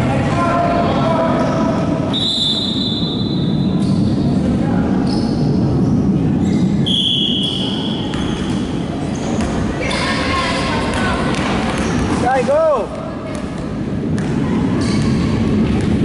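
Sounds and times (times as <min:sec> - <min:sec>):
high squeal: 0:06.4 - 0:09.4.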